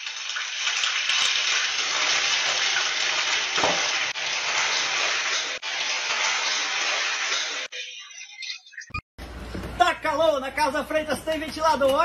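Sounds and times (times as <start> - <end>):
oil sizzling in a frying pan: 0.0 - 8.8.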